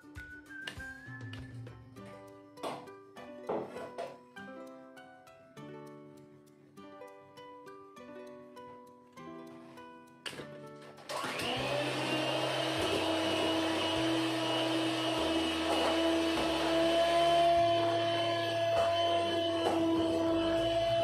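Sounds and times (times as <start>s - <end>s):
plucked-string music: 0.0s - 21.0s
electric mixer running: 11.1s - 21.0s.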